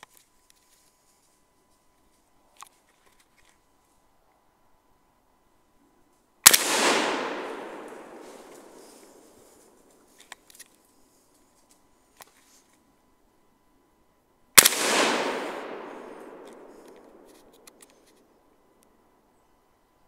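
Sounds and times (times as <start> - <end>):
rifle shot echoing: 6.4 - 9.9, 14.6 - 17.9.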